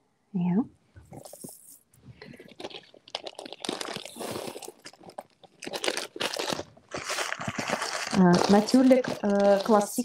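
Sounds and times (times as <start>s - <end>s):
plastic bag crinkling: 1.1s - 10.0s
glass beads trickling into bag: 2.6s - 10.0s.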